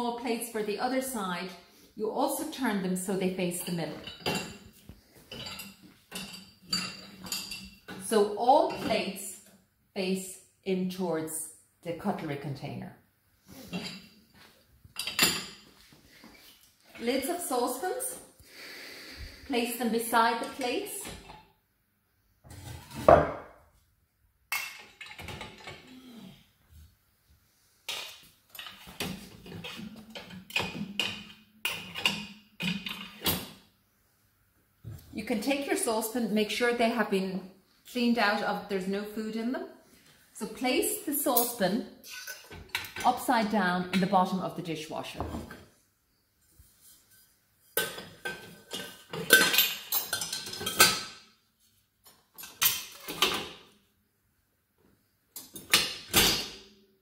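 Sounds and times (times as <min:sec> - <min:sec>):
saucepans clanking in dishwasher rack: 0:05.3 - 0:09.2, 0:24.6 - 0:25.9, 0:47.8 - 0:51.2
dishes clinking against wire rack: 0:47.8 - 0:51.2.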